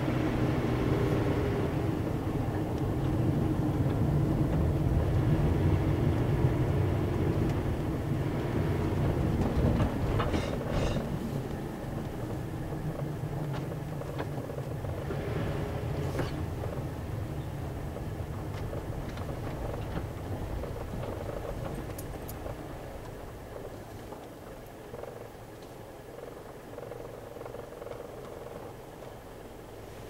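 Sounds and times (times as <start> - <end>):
car engine and tyre rumble: 0.0 - 30.0
faint clicks and knocks: 9.0 - 14.9, 17.9 - 29.2.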